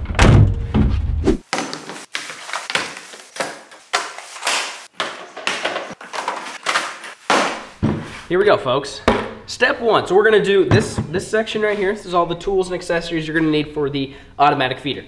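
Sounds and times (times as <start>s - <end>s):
plastic bag rustling: 1.4s - 8.3s.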